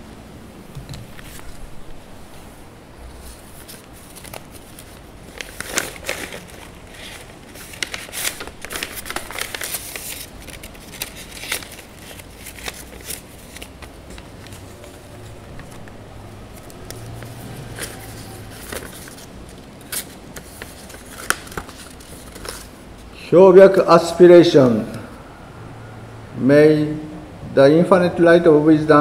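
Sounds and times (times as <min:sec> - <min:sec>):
paper rustling: 0:00.8 - 0:01.9, 0:03.1 - 0:23.1.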